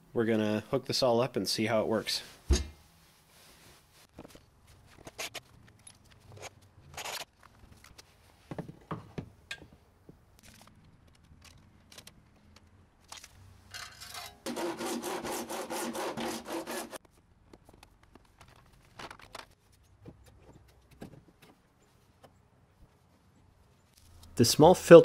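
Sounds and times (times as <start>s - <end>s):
hand saw cutting plastic: 14.4s - 17.0s
handling knocks and clicks: 17.1s - 22.4s.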